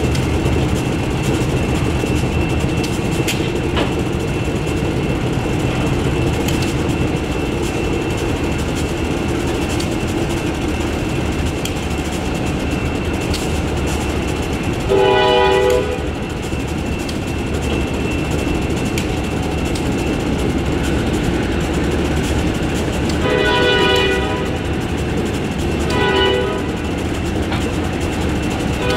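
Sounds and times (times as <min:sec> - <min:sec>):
freight train passing: 0:00.0 - 0:28.9
train wheels clicking over rails: 0:00.0 - 0:28.9
locomotive horn blast: 0:14.9 - 0:16.1, 0:23.2 - 0:24.6, 0:25.9 - 0:26.8.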